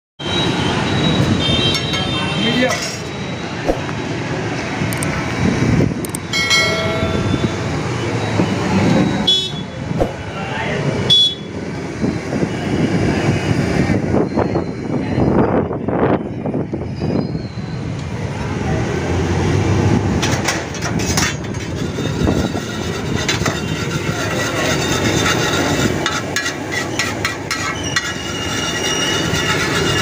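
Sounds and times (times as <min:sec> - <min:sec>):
metal spatula scraping griddle: 0:02.6 - 0:03.1, 0:20.7 - 0:30.0.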